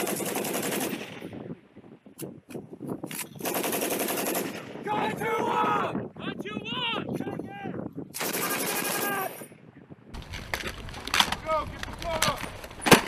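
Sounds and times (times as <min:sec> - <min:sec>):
machine guns firing: 0:00.0 - 0:01.2, 0:03.4 - 0:04.7, 0:08.2 - 0:09.2.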